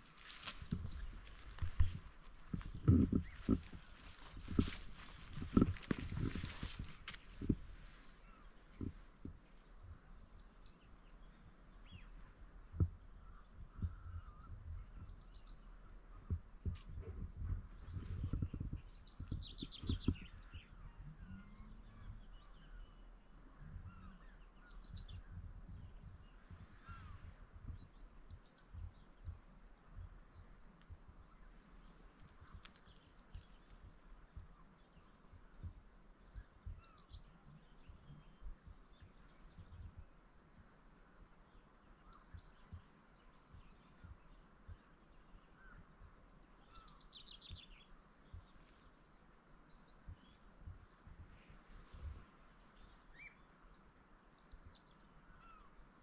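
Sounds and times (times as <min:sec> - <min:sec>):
low footstep thumps: 0:00.0 - 0:10.1, 0:16.2 - 0:20.6
low wind rumble: 0:00.0 - 0:56.0
small birds chirping: 0:00.0 - 0:56.0.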